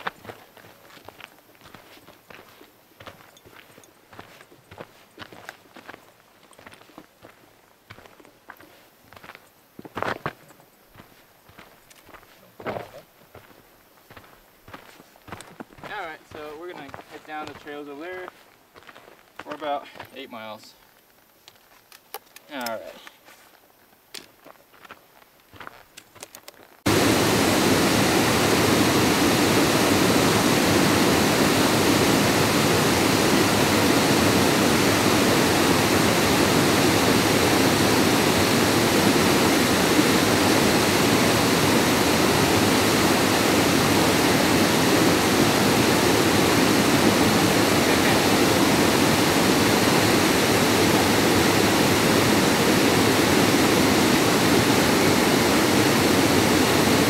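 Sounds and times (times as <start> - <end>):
water rushing over cascades: 26.9 - 57.0.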